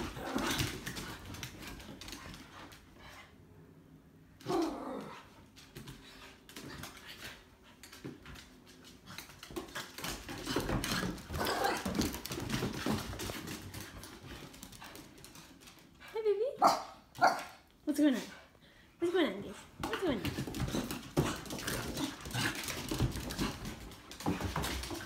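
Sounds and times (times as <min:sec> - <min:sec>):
dogs scuffling: 0:00.0 - 0:03.2, 0:05.4 - 0:16.1, 0:19.6 - 0:25.0.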